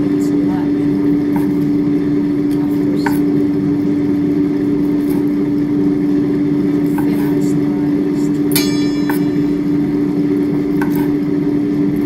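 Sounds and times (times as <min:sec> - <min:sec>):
air fryer fan humming: 0:00.0 - 0:12.0.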